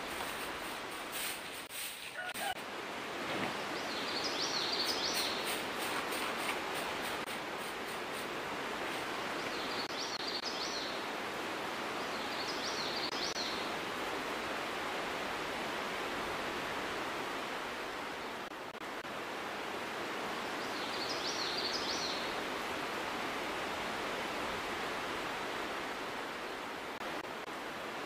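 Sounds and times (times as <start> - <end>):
outdoor background hiss: 0.0 - 28.0
small bird chirping: 4.0 - 5.6.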